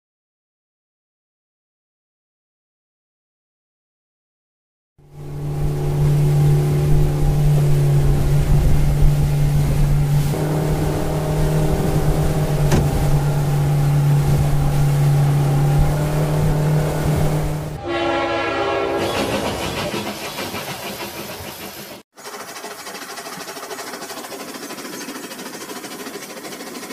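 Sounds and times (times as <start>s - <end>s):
toy motor humming: 22.2s - 26.9s.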